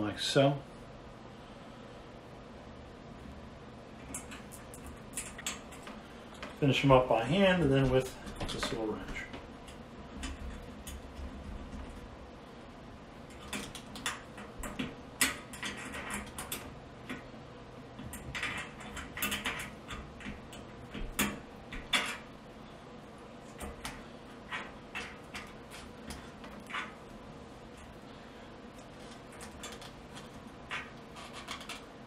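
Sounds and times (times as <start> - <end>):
small metallic clicks and scrapes: 4.0 - 6.6, 13.2 - 17.3, 17.9 - 22.6, 28.8 - 32.0.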